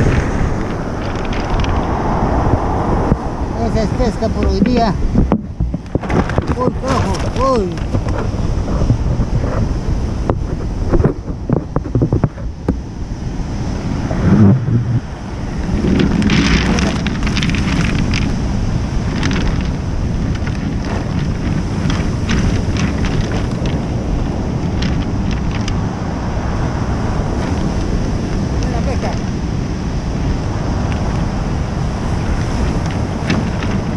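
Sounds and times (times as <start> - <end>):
scattered crackles: 0.0 - 12.8, 14.1 - 29.4, 30.3 - 33.9
surf on pebble beach: 0.0 - 33.9
wind buffeting microphone: 0.0 - 33.9
plastic sack rustling: 5.9 - 8.4, 15.6 - 25.9.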